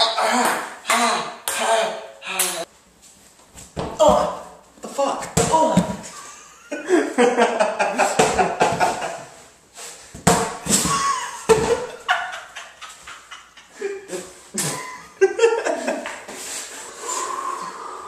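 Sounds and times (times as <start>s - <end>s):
man laughing hard: 6.0s - 9.3s, 10.8s - 16.2s.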